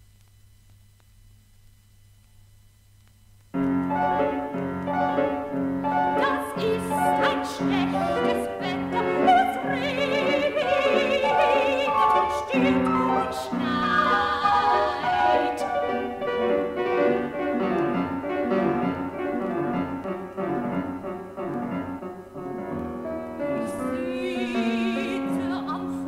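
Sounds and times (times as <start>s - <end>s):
piano chords: 3.5s - 26.0s
soprano singing with vibrato: 4.9s - 17.0s, 23.4s - 26.0s.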